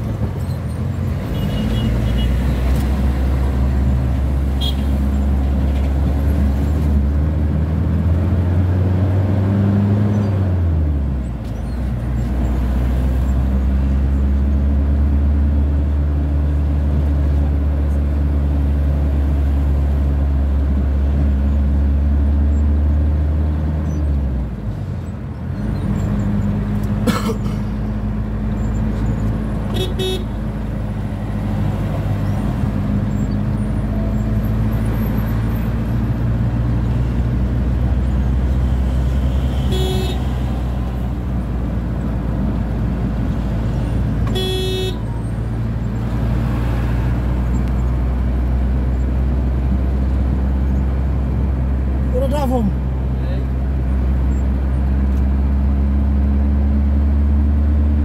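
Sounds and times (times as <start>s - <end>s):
vehicle engine drone: 0.0s - 58.0s
horn toots: 4.6s - 5.0s, 29.7s - 30.4s, 39.3s - 40.7s, 44.2s - 45.1s.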